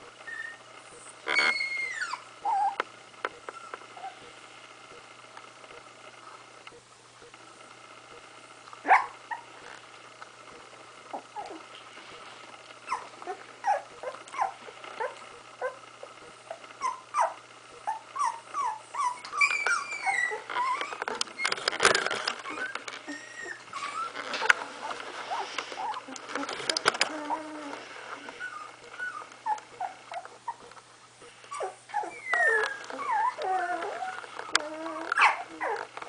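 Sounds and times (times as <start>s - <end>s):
puppy whimpering: 0.2s - 2.9s, 3.5s - 4.3s, 8.8s - 9.7s, 11.1s - 11.8s, 12.8s - 30.7s, 31.5s - 36.0s
loud rustle: 20.5s - 29.4s.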